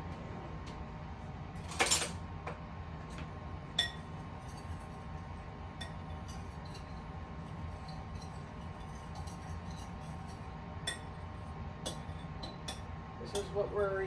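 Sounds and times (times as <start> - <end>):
steady low hum: 0.0 - 14.0
spoon clinking against cup: 3.8 - 4.7.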